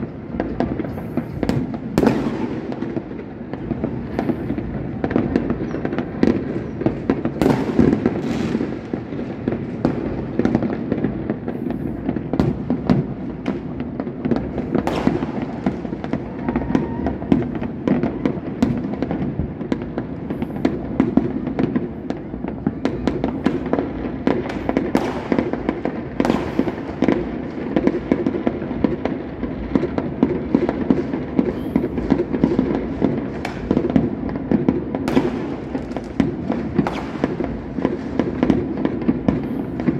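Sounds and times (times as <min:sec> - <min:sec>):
fireworks crackling and rumbling: 0:00.0 - 0:39.9
sharp firework cracks: 0:00.0 - 0:39.9.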